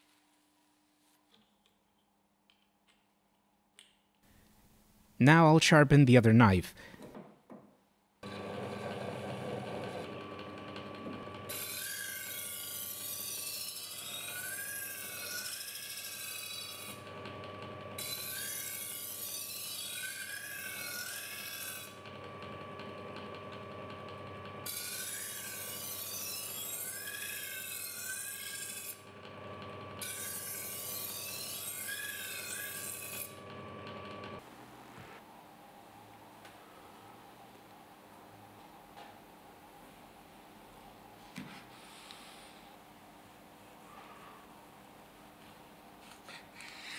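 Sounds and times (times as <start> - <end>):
lathe motor humming: 8.2 - 11.5, 22.0 - 24.6, 33.3 - 34.4
knife scraping on sandpaper wheel: 46.1 - 46.9.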